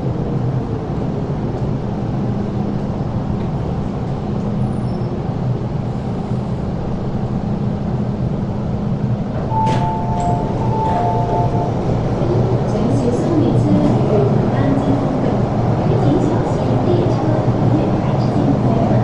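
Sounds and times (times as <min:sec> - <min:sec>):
train rumbling to a stop: 0:00.0 - 0:19.0
two-tone door chime: 0:09.5 - 0:11.8.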